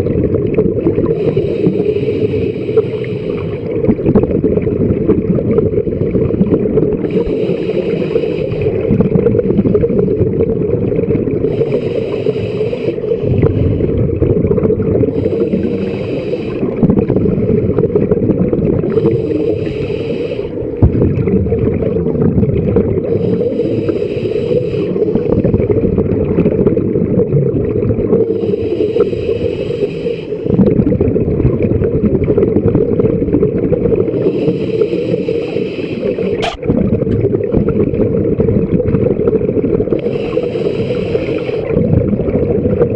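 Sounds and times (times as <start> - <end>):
diver exhaling bubbles: 0.0 - 42.9
sharp click: 36.4 - 36.6.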